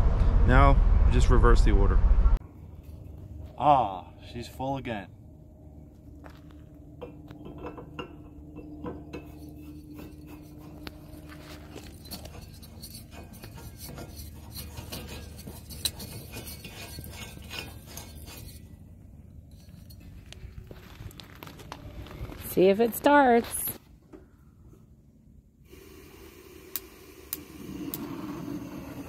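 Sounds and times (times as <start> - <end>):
metal fitting clicking and scraping: 7.0 - 18.7.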